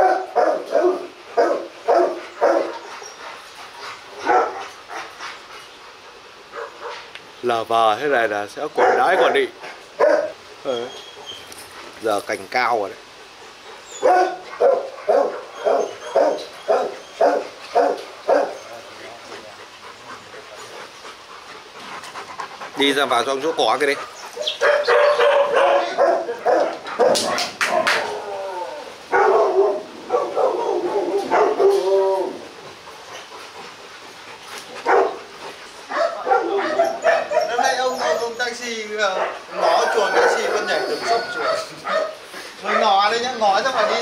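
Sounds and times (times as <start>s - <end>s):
dog barking: 0.0s - 2.8s, 4.2s - 4.7s, 6.5s - 7.0s, 8.7s - 10.4s, 14.0s - 18.6s, 24.4s - 28.0s, 29.1s - 31.8s, 34.8s - 35.2s, 35.9s - 38.4s, 39.0s - 43.0s, 43.6s - 44.0s.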